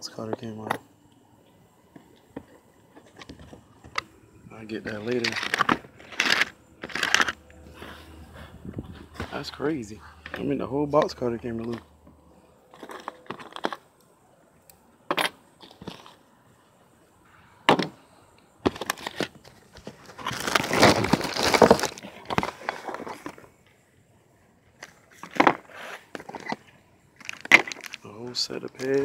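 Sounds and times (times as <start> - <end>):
plastic wrap crinkling: 19.8 - 23.2, 27.2 - 28.0.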